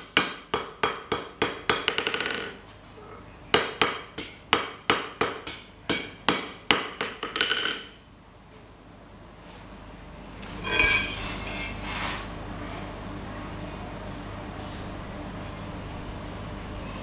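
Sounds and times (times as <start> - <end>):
hammer striking steel on anvil: 0.0 - 2.6, 3.5 - 7.9.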